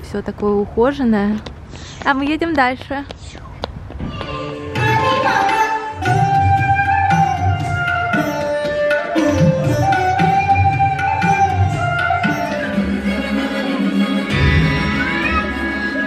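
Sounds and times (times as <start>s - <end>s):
sliding melody line: 4.4s - 16.0s.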